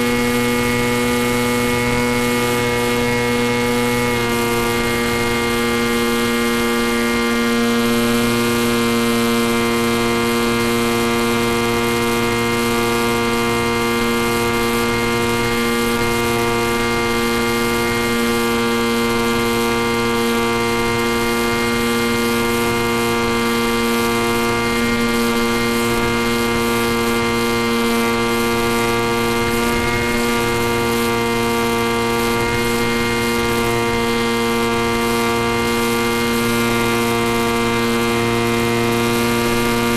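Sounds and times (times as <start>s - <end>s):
electric motor and propeller buzzing: 0.0s - 39.9s.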